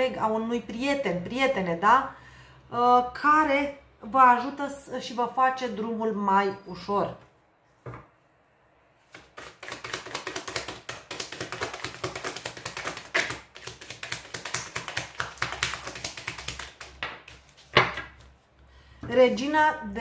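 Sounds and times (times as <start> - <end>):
cards being shuffled: 9.1 - 18.4.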